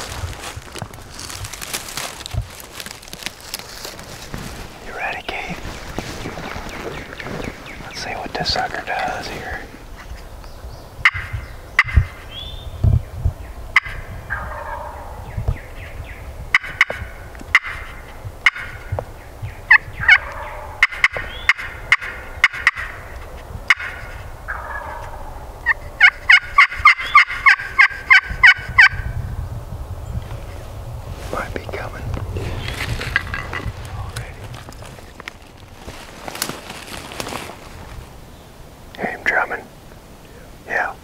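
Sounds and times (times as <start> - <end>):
turkey call clucks and yelps: 11.0 - 12.2, 13.8 - 15.1, 16.5 - 18.9, 19.7 - 29.0.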